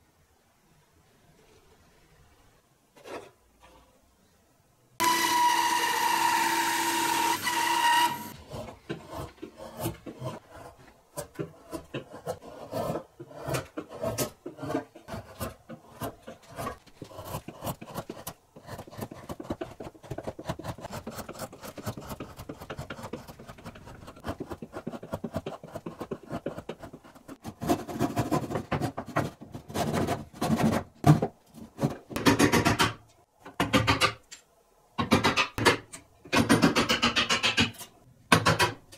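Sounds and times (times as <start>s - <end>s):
bandsaw cutting wood: 5.0s - 10.0s
chisel scraping wood: 7.4s - 30.8s.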